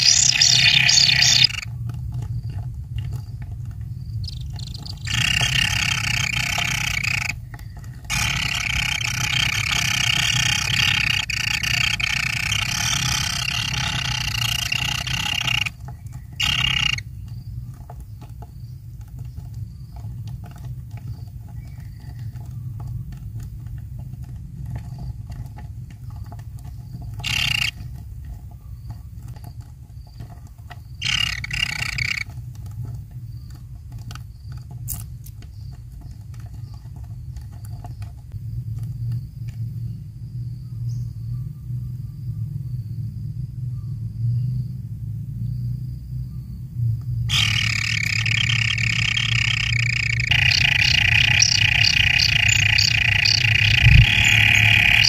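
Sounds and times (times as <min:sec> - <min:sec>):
nestlings rasping begging calls: 0:00.0 - 0:01.7, 0:04.2 - 0:07.4, 0:08.1 - 0:17.0, 0:27.2 - 0:27.8, 0:31.0 - 0:32.3, 0:47.3 - 0:55.0
low steady rumble: 0:00.0 - 0:27.3, 0:41.4 - 0:55.0.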